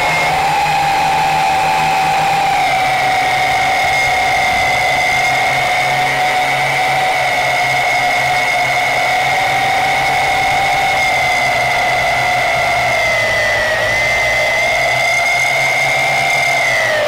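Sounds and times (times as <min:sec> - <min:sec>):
drone propellers high whine: 0:00.0 - 0:17.0.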